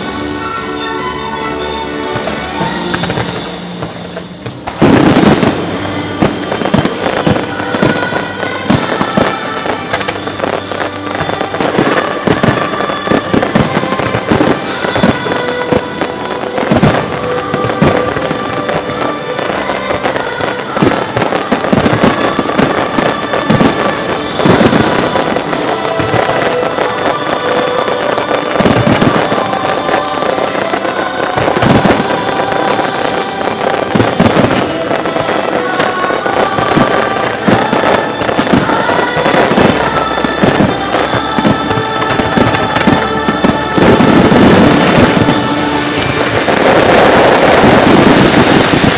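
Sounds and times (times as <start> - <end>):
firework bangs and crackling: 0.0 - 48.9
music: 0.0 - 48.9.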